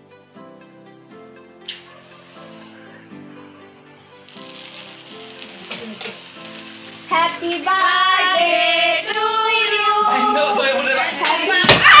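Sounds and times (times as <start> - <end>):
soft music: 0.0 - 12.0
sparkler fizzing and crackling: 1.6 - 3.0, 4.0 - 12.0
loud singing: 7.1 - 12.0.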